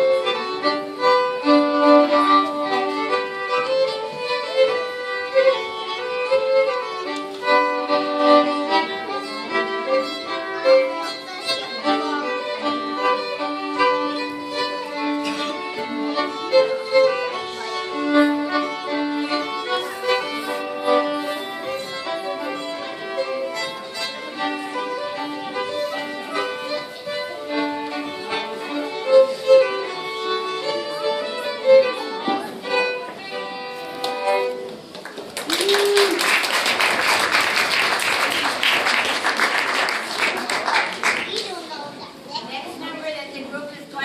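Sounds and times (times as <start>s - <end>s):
fiddle playing folk-dance tune: 0.0s - 35.0s
audience applause: 34.9s - 41.6s.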